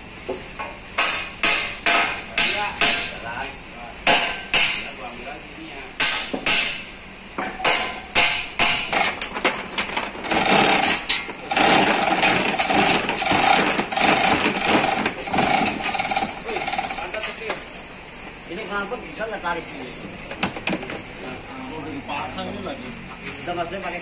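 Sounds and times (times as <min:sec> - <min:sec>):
hammer knocks on metal: 0:00.6 - 0:03.2, 0:04.1 - 0:04.9, 0:06.0 - 0:06.8, 0:07.4 - 0:09.1
rattling hammering with ringing tone: 0:01.0 - 0:03.3, 0:04.0 - 0:05.0, 0:06.0 - 0:09.3.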